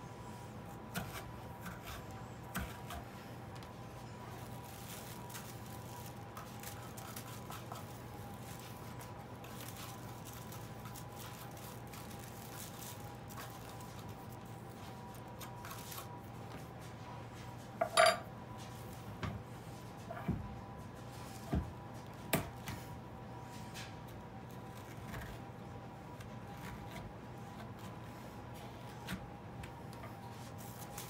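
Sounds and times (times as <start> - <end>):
seeds rustling in plastic bag: 4.3 - 16.0.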